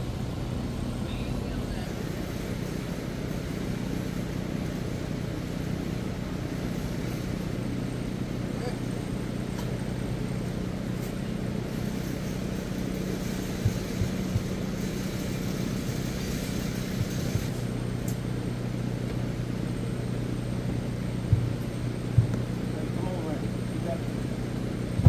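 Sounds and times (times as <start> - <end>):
low machine hum: 0.0 - 25.0
dull thumps of tire: 21.3 - 22.5.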